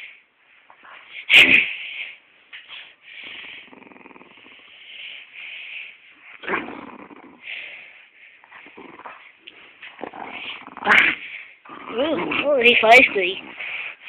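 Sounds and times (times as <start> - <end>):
dog growling: 3.2 - 5.2, 6.4 - 7.9, 8.5 - 14.0.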